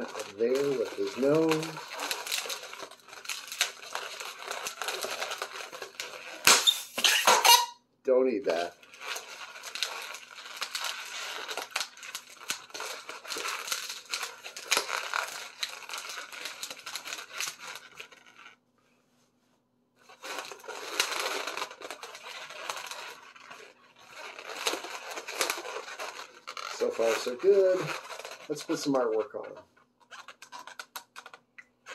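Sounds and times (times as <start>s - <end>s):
balloons rubbing and squeaking: 0.0s - 7.8s, 8.5s - 18.6s, 20.0s - 31.9s.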